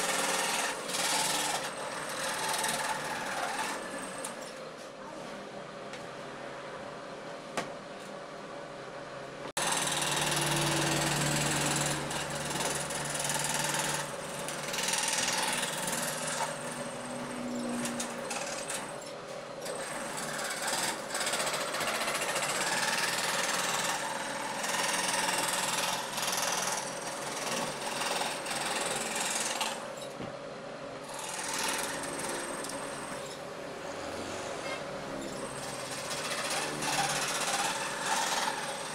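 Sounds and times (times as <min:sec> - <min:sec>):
jigsaw cutting wood: 0:00.0 - 0:04.4, 0:09.6 - 0:18.9, 0:19.6 - 0:29.9, 0:31.1 - 0:33.0, 0:35.4 - 0:38.9.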